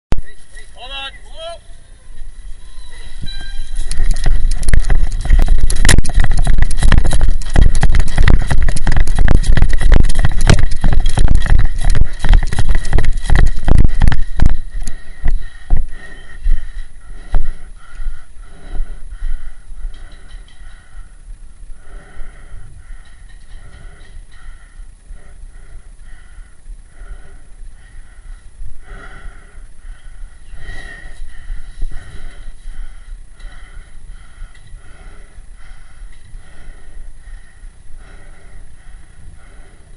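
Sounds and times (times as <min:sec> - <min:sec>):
gear rustling against camera: 0:02.1 - 0:17.8
running footsteps through leaves: 0:02.2 - 0:17.6
rapid heavy breathing: 0:03.0 - 0:39.9.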